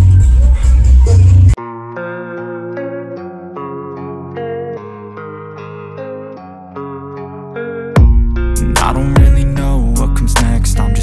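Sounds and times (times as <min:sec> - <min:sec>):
hip-hop music with deep bass: 0:00.0 - 0:02.1, 0:08.0 - 0:11.0
heavy kick-drum hits: 0:08.0 - 0:08.4, 0:09.2 - 0:09.6.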